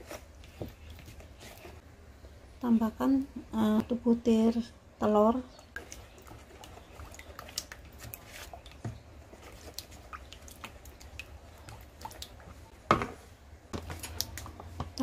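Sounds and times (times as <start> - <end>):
spatula stirring in plastic bowl: 5.7 - 15.0.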